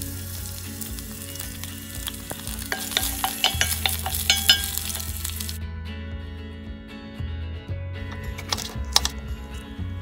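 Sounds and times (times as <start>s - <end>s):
vegetables sizzling in oil: 0.0s - 5.6s.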